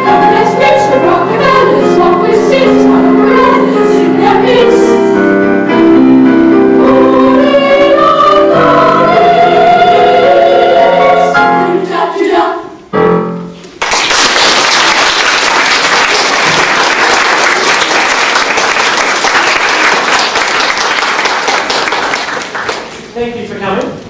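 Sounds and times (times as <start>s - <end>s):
boys' choir singing: 0.0s - 5.1s, 6.6s - 12.8s
audience applauding: 13.8s - 23.1s.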